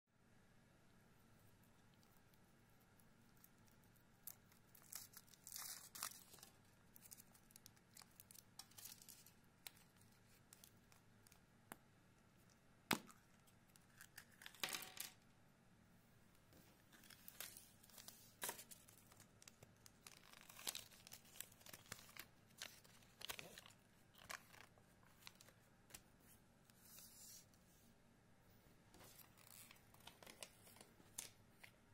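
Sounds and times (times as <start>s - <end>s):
foil wrapper crinkling and tearing: 4.2s - 10.8s, 17.0s - 25.5s.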